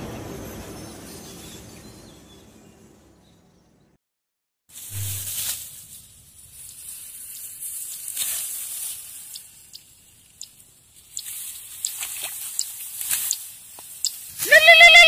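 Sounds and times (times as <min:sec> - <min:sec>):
dry rice stalks rustling: 0:04.7 - 0:15.0
stalks snapping: 0:09.3 - 0:14.4.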